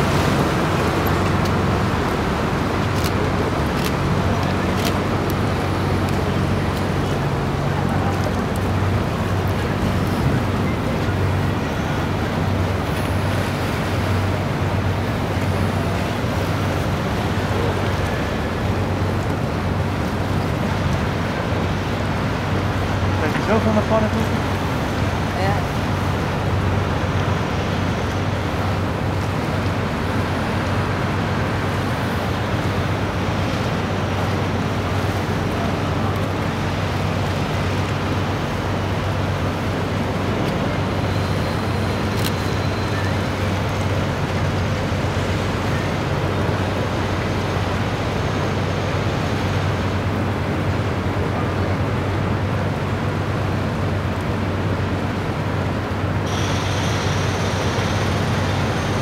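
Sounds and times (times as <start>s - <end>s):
boat engine humming: 0.0s - 59.0s
water rushing: 0.0s - 59.0s
wind: 0.0s - 59.0s.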